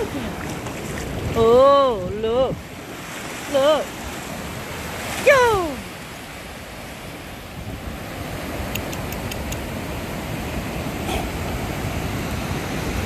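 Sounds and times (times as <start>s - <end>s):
ocean surf rushing: 0.0s - 13.0s
faint ticks: 8.7s - 9.6s.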